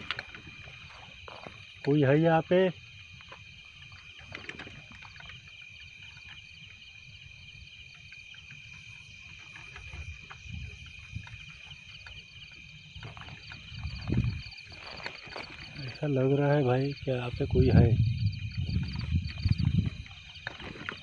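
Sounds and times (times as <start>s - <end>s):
night insects chirping: 0.0s - 21.0s
footsteps on dry grass: 13.2s - 16.0s.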